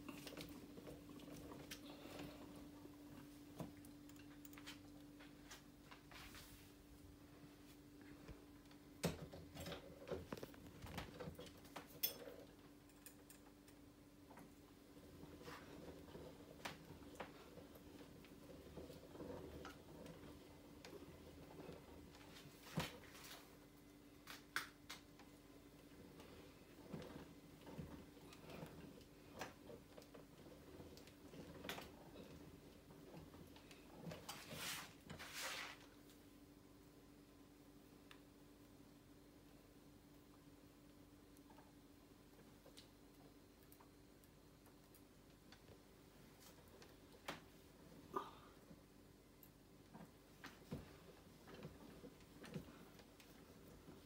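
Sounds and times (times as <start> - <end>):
faint steady hum: 0.0 - 54.0
soft rustling swishes: 4.7 - 8.0, 34.2 - 35.9.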